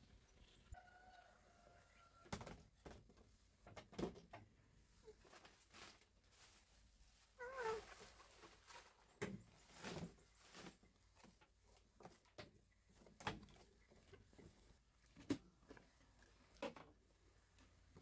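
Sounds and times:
plastic bag rustling: 5.1 - 10.9.

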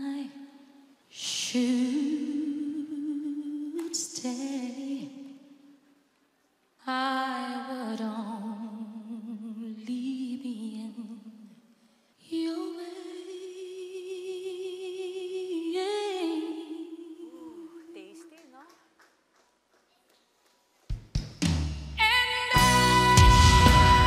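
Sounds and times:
woman singing with vibrato: 0.0 - 5.8, 6.8 - 11.6, 12.2 - 18.4, 22.0 - 24.0.

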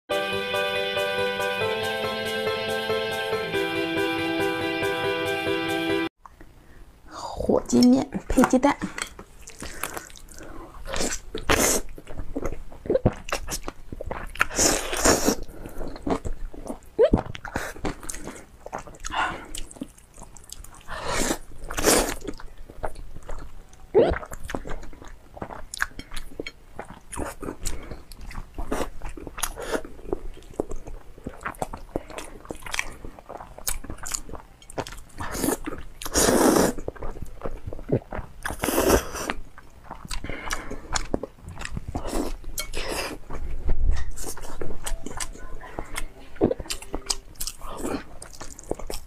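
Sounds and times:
wet chewing: 8.8 - 49.0
slurping noodles: 35.1 - 37.0, 38.0 - 39.4.

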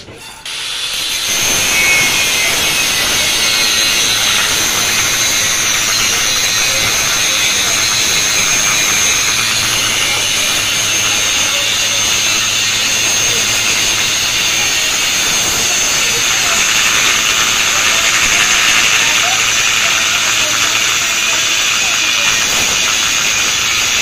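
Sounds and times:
angle grinder cutting steel: 0.4 - 24.0.

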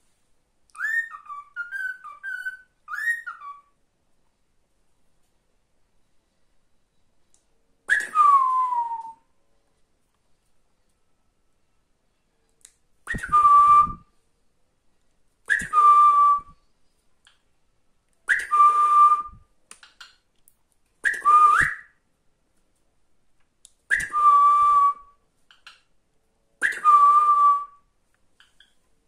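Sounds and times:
whistled phrase: 7.9 - 9.3, 13.1 - 14.0, 15.5 - 16.6, 21.0 - 22.0, 26.6 - 27.8.

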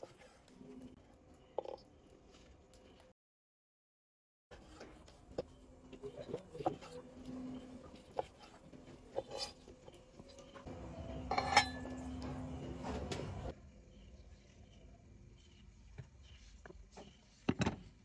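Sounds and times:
dishes and utensils clinking: 8.0 - 13.5.

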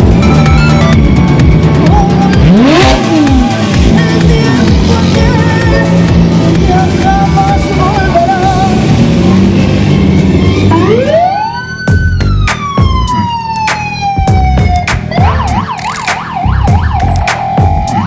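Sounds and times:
emergency vehicle siren: 0.0 - 18.0.

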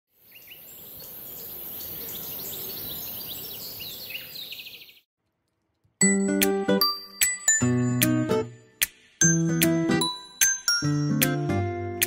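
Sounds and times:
birds chirping: 0.1 - 5.1.

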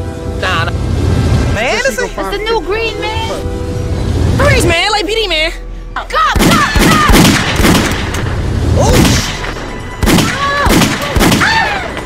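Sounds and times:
people shouting: 6.0 - 7.4, 10.1 - 12.0.

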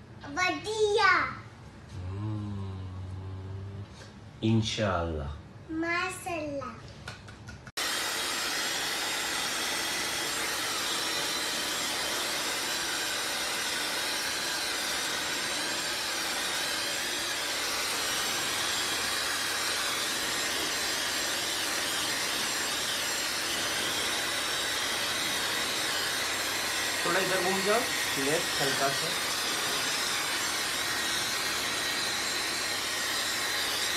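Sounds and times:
hair dryer running: 7.8 - 33.9.

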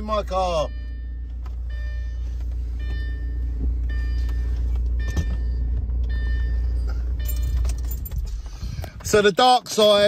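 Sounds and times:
car warning chime beeping: 0.0 - 8.2
low car rumble: 0.0 - 10.0.

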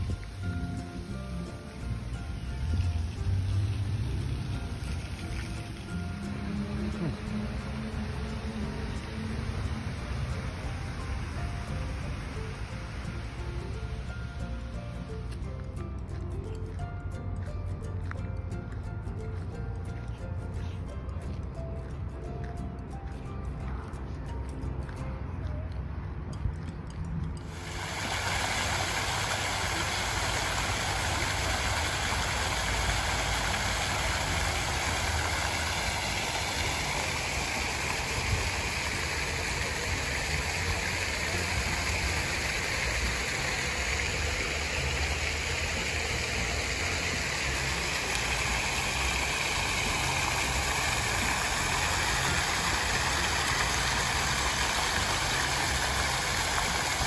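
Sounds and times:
fountain spray splashing: 0.0 - 15.4, 27.4 - 57.0.

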